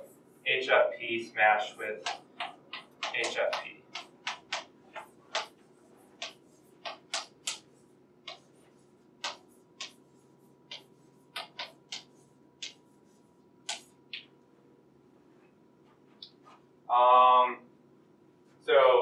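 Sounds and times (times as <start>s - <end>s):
chalk tapping on blackboard: 1.6s - 14.3s.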